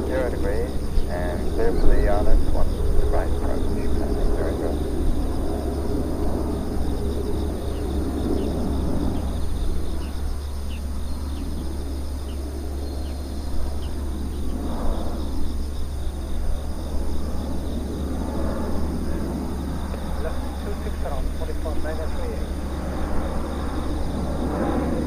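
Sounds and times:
jet airliner rumbling overhead: 0:00.0 - 0:25.0.

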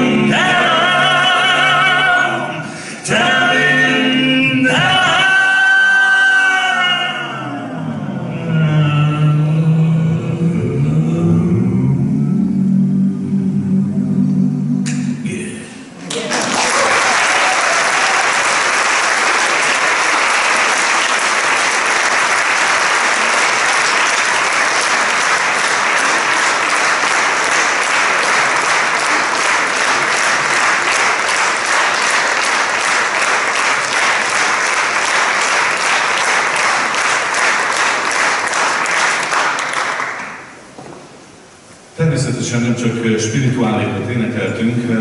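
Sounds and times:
audience applauding: 0:16.1 - 0:40.7.

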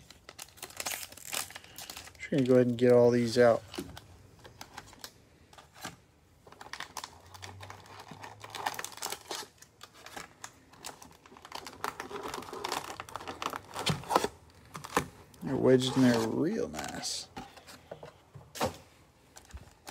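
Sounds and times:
foil packs rustling and clicking: 0:00.0 - 0:17.2.

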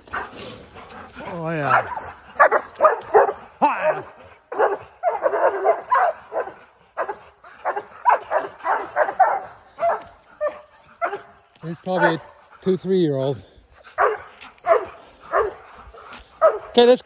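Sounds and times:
dogs barking rapidly: 0:00.0 - 0:17.0.

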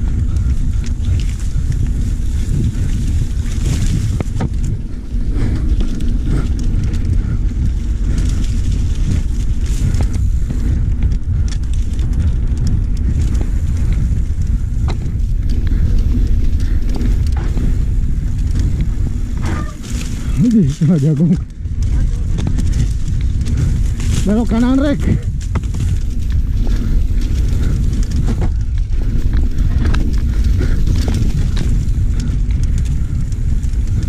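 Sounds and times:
bike frame rattling and knocking: 0:00.0 - 0:34.0
wind rumbling on microphone: 0:00.0 - 0:34.0.

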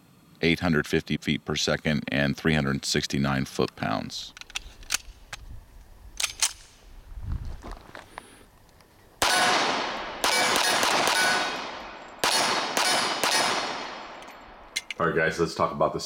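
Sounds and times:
metallic handling clicks: 0:03.6 - 0:05.5, 0:06.2 - 0:06.8, 0:14.2 - 0:15.0
pistol shots echoing: 0:09.2 - 0:14.9.

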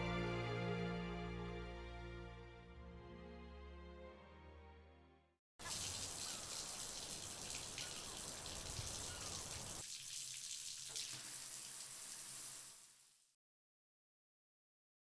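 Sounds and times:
tap water running into basin: 0:05.6 - 0:13.2.

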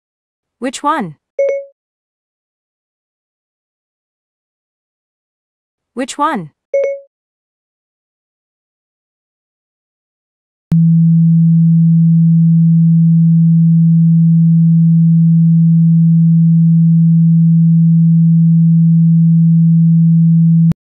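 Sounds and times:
steady low tone from phone speaker: 0:10.7 - 0:20.8.

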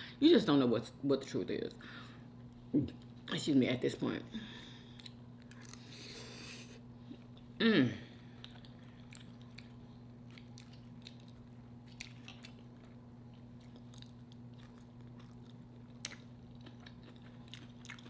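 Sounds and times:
low electrical hum: 0:00.0 - 0:18.0
wet chewing: 0:08.4 - 0:18.0.

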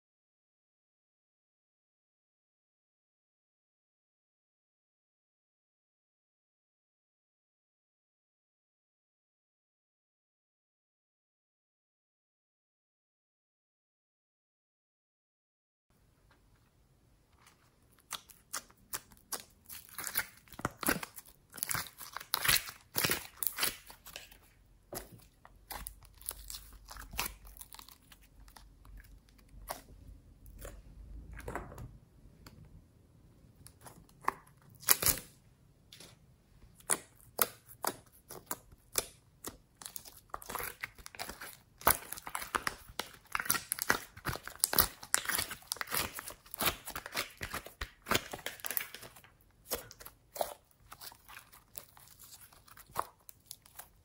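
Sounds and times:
slime crackling and popping: 0:17.9 - 0:30.8, 0:33.6 - 0:35.4, 0:36.8 - 0:54.0.

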